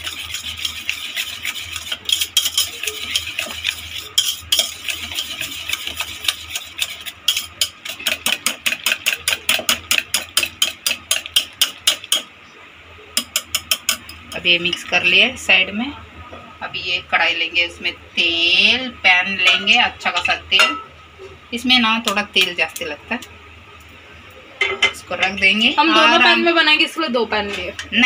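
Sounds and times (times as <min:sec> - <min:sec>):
whisk clicking in metal bowl: 0:00.0 - 0:12.2, 0:13.2 - 0:14.2.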